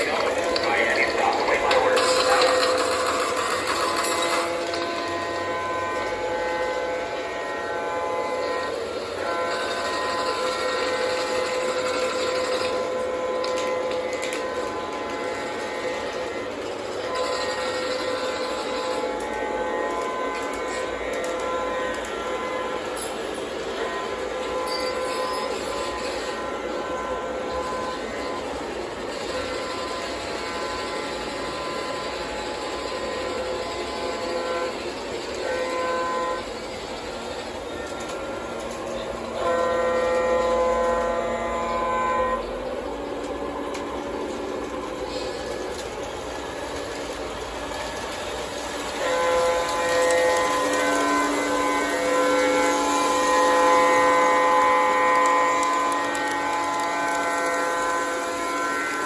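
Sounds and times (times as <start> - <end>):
model train horn blasts: 0.0 - 59.0
model train wheels rumbling on rails: 0.0 - 59.0
steady tonal hum: 0.0 - 59.0.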